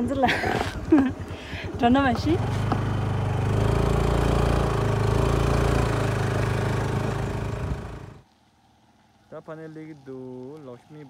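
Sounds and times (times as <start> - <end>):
small motorcycle engine running: 1.6 - 8.2.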